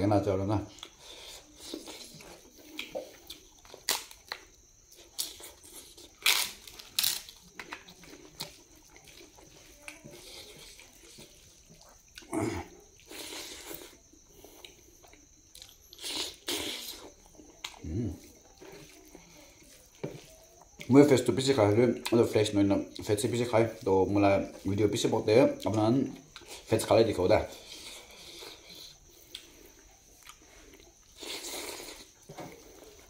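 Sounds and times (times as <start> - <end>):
chewing: 0.7 - 33.0.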